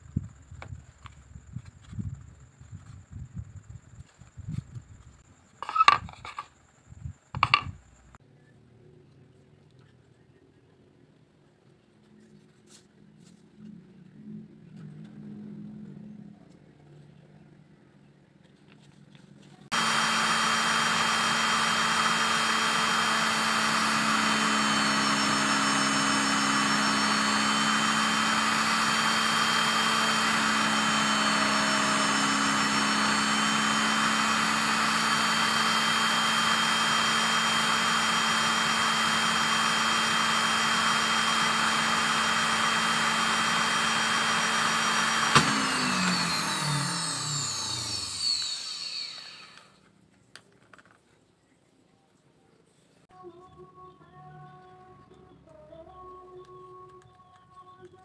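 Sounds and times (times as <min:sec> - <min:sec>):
drill press motor running: 0:19.7 - 0:49.8.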